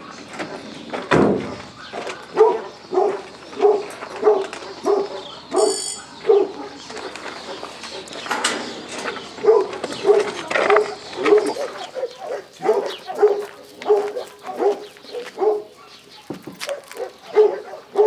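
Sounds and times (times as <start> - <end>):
dog barking: 1.8 - 8.2, 9.4 - 18.0.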